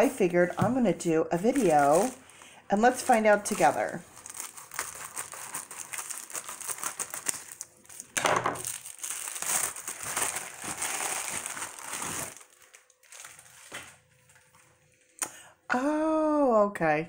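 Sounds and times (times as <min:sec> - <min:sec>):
plastic mailer crinkling: 0:01.4 - 0:14.7.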